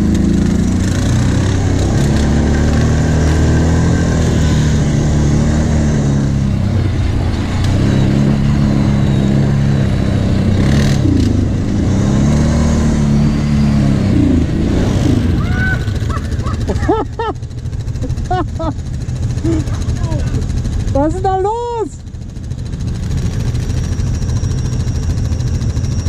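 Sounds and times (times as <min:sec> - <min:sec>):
atv engine running: 0:00.0 - 0:26.0.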